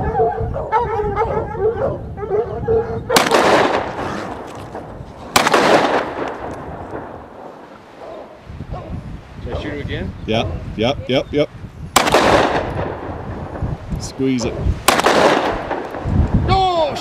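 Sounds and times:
hounds baying: 0.0 - 4.9, 7.7 - 9.0, 10.3 - 10.8
gunshots echoing: 3.1 - 8.0, 12.0 - 13.7, 14.8 - 16.3.

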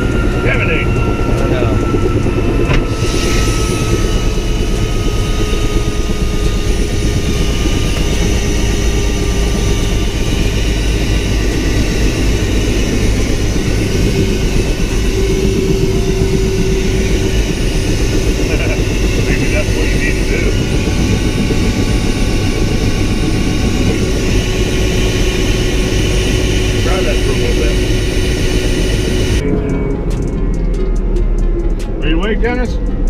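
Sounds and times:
helicopter engine rumble: 0.0 - 33.0
turbine whine: 0.0 - 33.0.

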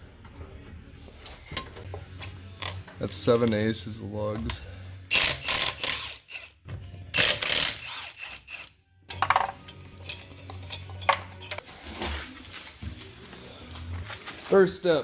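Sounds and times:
impact wrench hammering: 5.1 - 6.5, 7.1 - 9.6.

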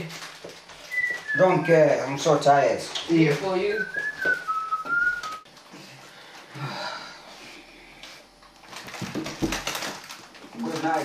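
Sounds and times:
person whistling: 0.8 - 1.9, 3.7 - 5.5.

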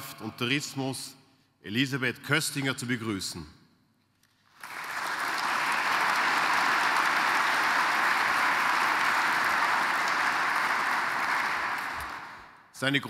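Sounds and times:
audience applauding: 4.5 - 12.6.

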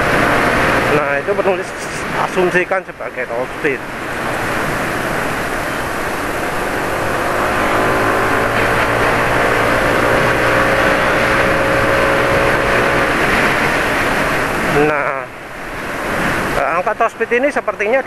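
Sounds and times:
scooter engine accelerating: 0.0 - 1.6, 3.9 - 15.0
wind on microphone: 3.8 - 16.6.

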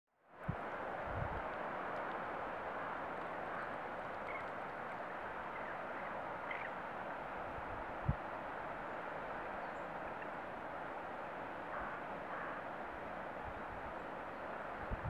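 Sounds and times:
river rushing: 0.3 - 15.0
faint bird chirps: 5.5 - 6.8.

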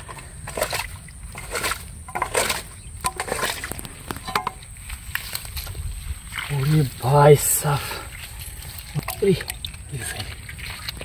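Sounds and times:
muddy water sloshing and splashing: 0.0 - 11.0
steel bowl scooping water: 0.0 - 11.0.

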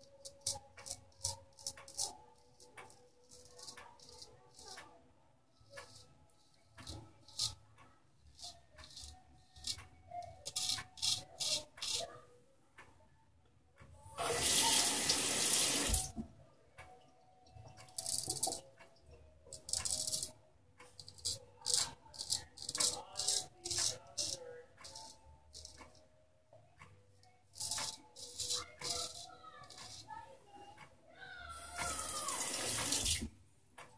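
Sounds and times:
water tap running: 14.2 - 16.1, 31.8 - 33.3
razor scraping stubble: 27.6 - 30.0.

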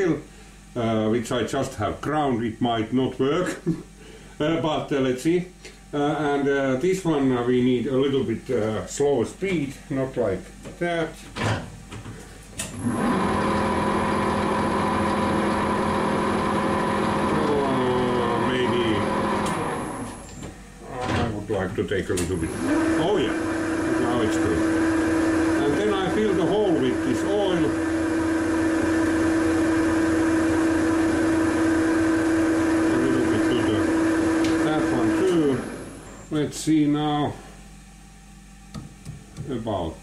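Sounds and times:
lathe humming and whining: 12.6 - 39.4.

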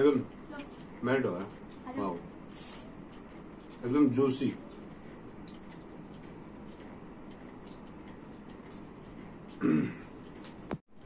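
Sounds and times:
throat sound: 9.6 - 10.1.

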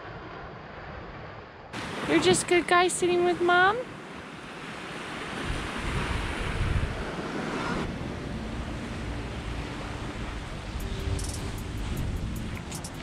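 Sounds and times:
small waves on sandy beach: 0.0 - 13.0
wind rumbling on microphone: 5.0 - 13.0.

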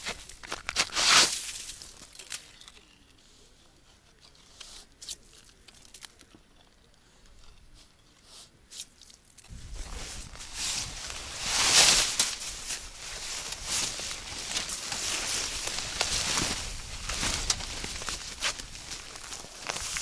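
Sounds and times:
ice and snow crunching: 0.0 - 2.9, 9.5 - 20.0.

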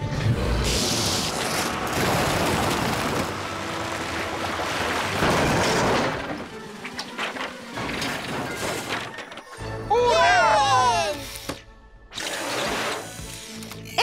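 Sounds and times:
truck wheels spinning on ice: 0.2 - 8.9
boat hull scraping over ice: 0.8 - 9.2.

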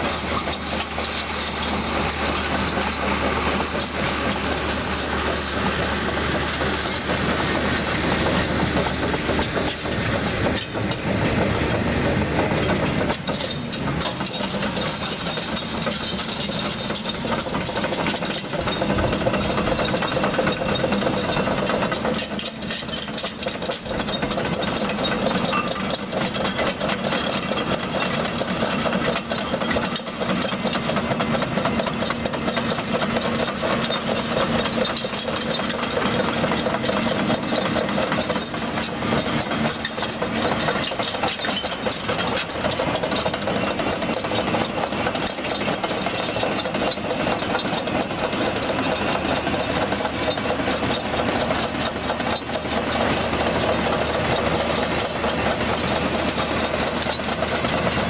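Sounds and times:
excavator diesel engine running: 0.0 - 58.0
steel tracks rattling: 0.0 - 58.0.

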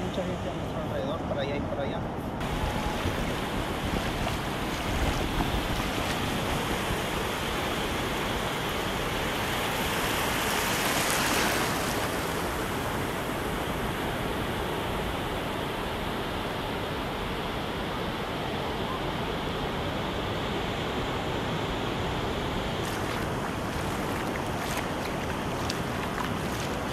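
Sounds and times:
small waves breaking on beach: 2.4 - 26.9
wave rushing up the shore: 2.4 - 26.9.

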